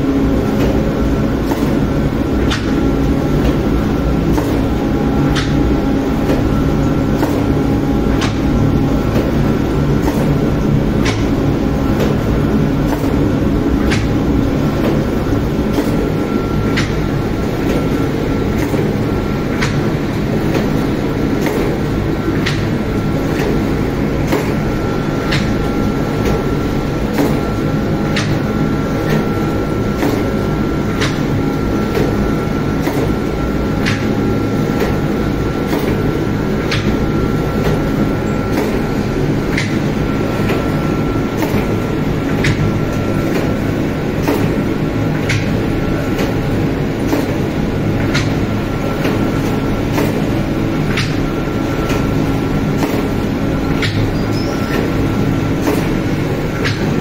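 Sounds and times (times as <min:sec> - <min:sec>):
oven machinery humming: 0:00.0 - 0:57.0.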